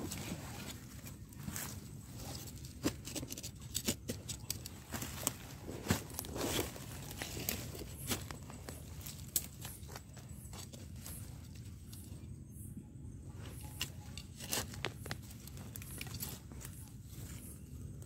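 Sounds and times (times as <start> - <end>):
hand rustling dry leaves: 0.0 - 12.1.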